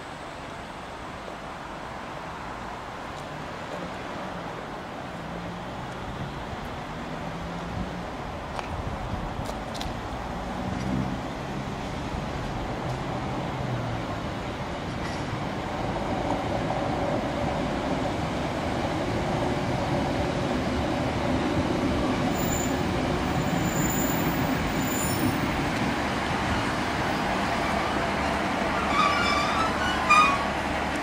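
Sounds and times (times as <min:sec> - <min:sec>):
diesel train approaching: 0:11.1 - 0:31.0
train brakes squealing: 0:22.3 - 0:25.6, 0:28.7 - 0:30.6.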